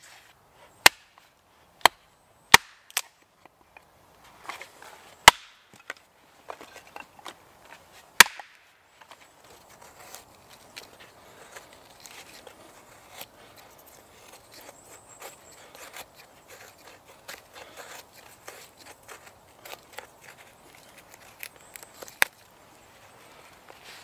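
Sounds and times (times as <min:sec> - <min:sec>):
knife scraping wood: 0:09.0 - 0:22.5.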